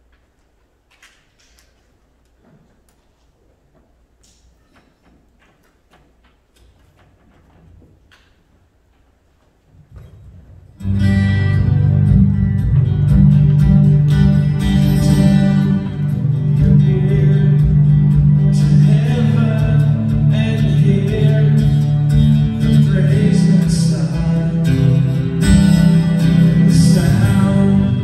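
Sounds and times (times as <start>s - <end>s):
guitars strumming: 10.0s - 28.0s.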